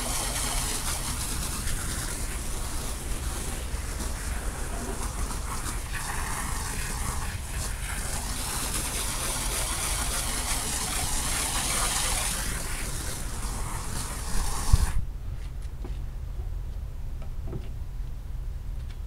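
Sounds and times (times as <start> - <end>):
water spraying hiss: 0.0 - 15.0
constant low rumble: 0.0 - 19.0.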